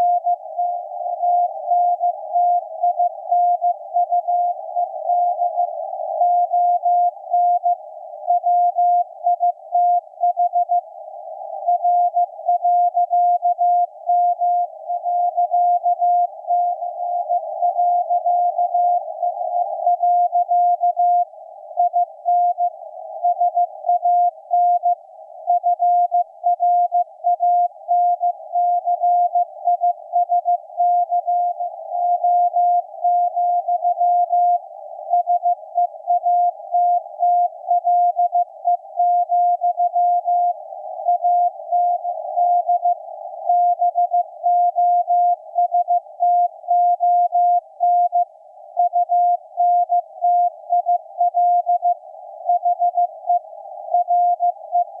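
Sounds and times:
morse code beeps: 41.1s - 48.2s, 48.8s - 53.4s, 54.0s - 55.0s.

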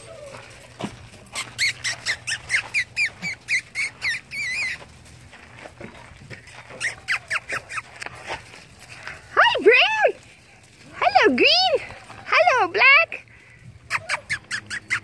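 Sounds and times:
puppies squealing: 0.0s - 5.0s, 6.7s - 8.0s, 13.9s - 15.0s.

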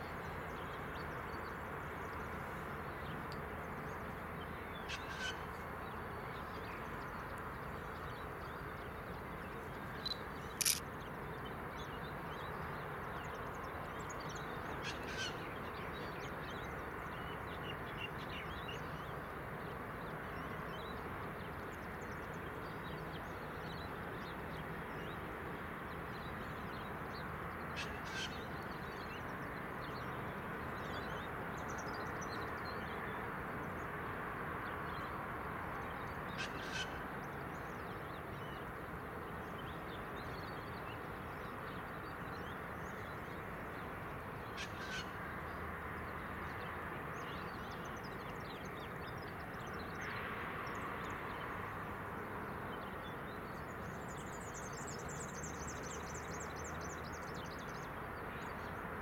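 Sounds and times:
sharp click: 10.6s - 10.8s.

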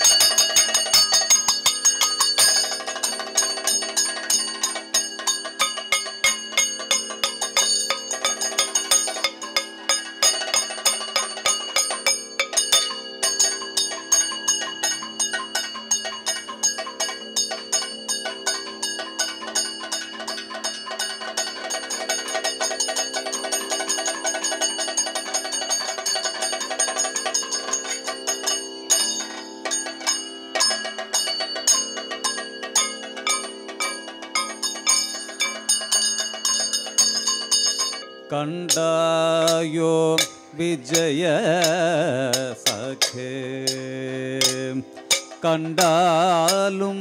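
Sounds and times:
ringing metal gong and cymbals: 0.0s - 47.0s
steady drone: 0.0s - 47.0s.

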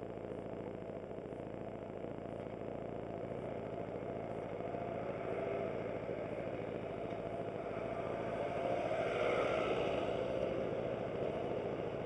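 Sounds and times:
truck driving past: 6.5s - 12.0s.

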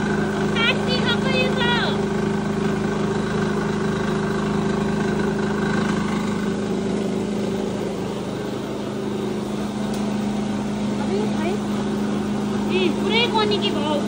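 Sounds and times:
oil mill machinery humming: 0.0s - 14.0s.

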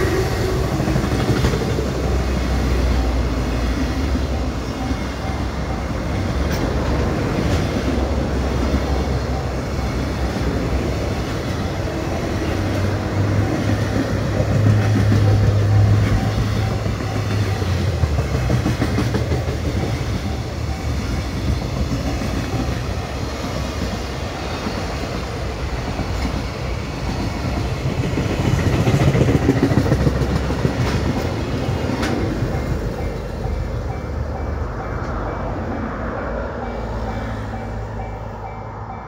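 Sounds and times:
freight train wheels rumbling on rails: 0.0s - 39.0s.

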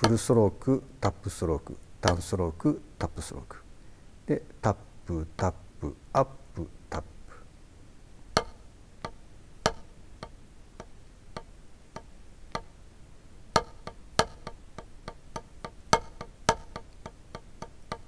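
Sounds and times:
drumsticks striking a practice pad: 0.0s - 1.2s, 2.0s - 2.4s, 8.4s - 12.8s, 13.5s - 18.0s.

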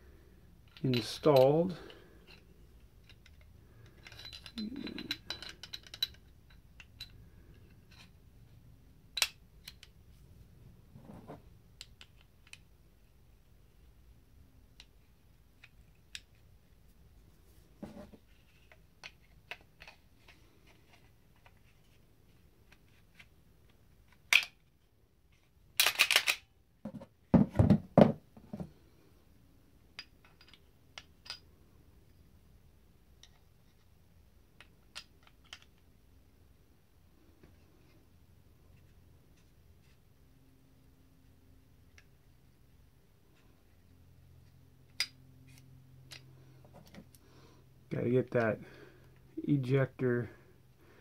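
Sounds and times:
light clicks of gun parts: 25.8s - 26.4s
knocks and rattles: 26.8s - 28.7s.

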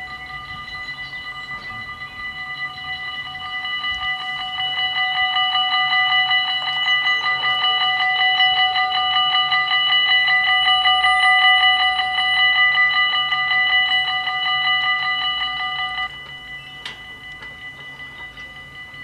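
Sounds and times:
faint ringing: 0.0s - 19.0s
level crossing bells ringing: 0.0s - 19.0s.

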